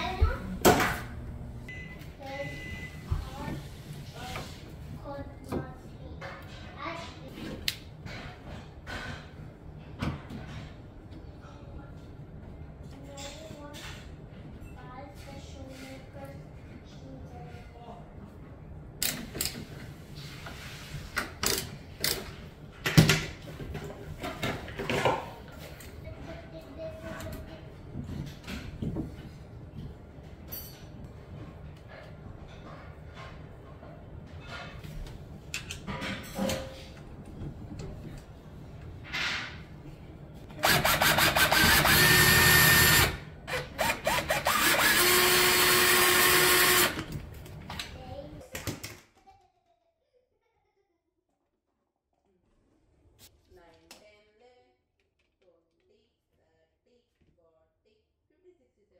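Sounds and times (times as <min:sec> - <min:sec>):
drill driving screws: 0:40.6 - 0:47.1.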